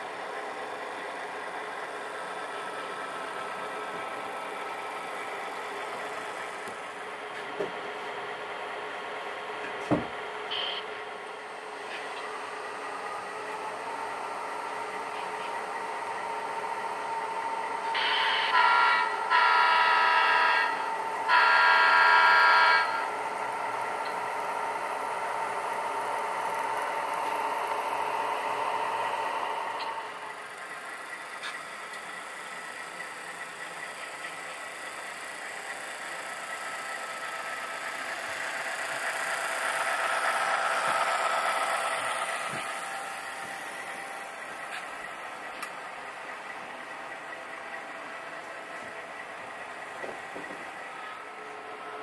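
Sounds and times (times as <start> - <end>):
diesel engine sound from speaker: 0.0 - 52.0
model train cars rolling on track: 0.0 - 52.0
model train horn blasts: 17.9 - 23.1.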